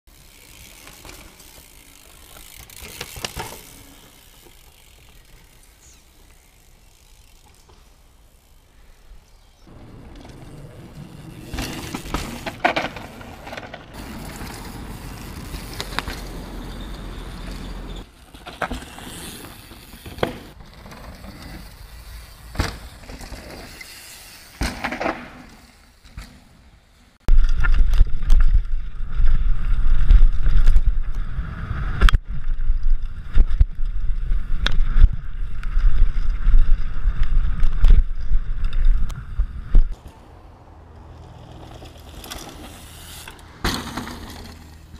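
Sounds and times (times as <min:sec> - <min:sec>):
bike rattling over rough ground: 0:00.1 - 0:09.0, 0:09.6 - 0:26.7, 0:27.3 - 0:44.9
bike tyres on dirt: 0:00.1 - 0:44.9
bike landing knocks: 0:22.5 - 0:23.6, 0:24.5 - 0:26.6, 0:43.6 - 0:44.8
wind rumble on microphone: 0:27.3 - 0:40.0.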